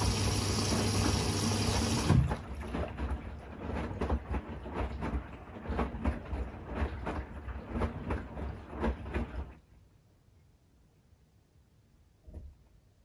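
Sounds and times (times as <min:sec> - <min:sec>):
washing machine load tumbling: 0:00.0 - 0:09.6.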